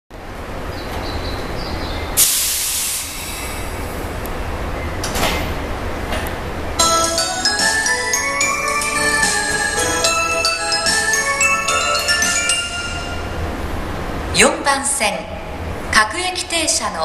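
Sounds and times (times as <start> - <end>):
electric train humming: 0.2 - 15.9
air hiss: 2.2 - 4.0
station departure chime melody: 6.7 - 13.9.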